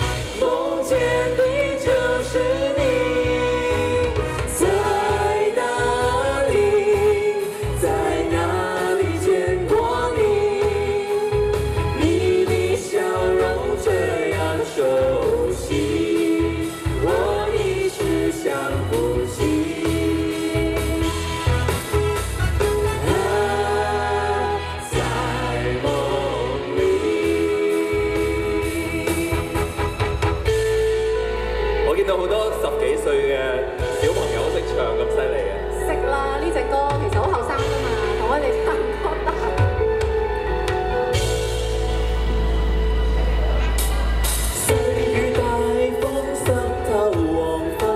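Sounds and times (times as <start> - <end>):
vocal trio singing pop: 0.0 - 31.5, 43.8 - 47.9
amplified accompaniment with bass: 0.0 - 47.9.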